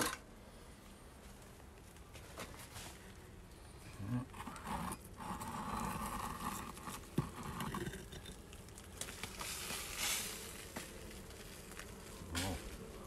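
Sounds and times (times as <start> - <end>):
stone scraping against stone: 4.2 - 10.5.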